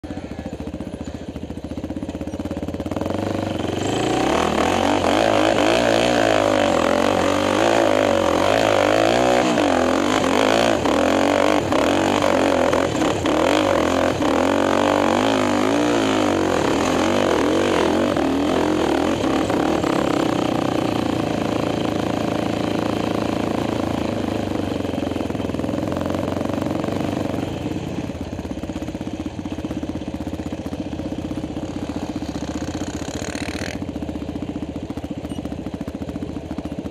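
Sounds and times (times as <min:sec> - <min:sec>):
quad engine revving: 0:00.0 - 0:36.9.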